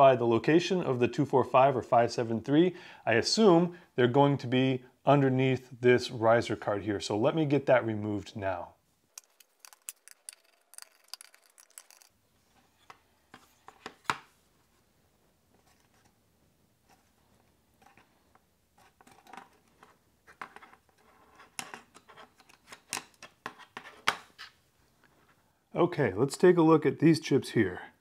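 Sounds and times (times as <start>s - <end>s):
light clicks and scratches: 9.2s - 14.0s, 16.8s - 25.4s.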